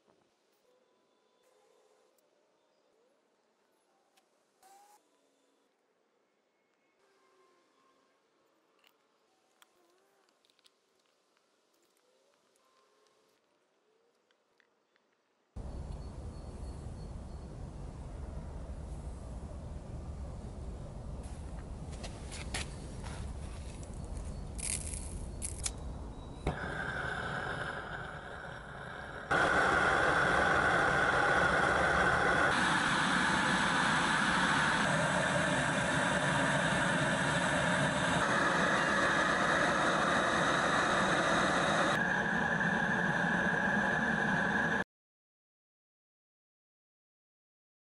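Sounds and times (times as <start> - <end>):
gas burner rushing: 26.4 - 44.8.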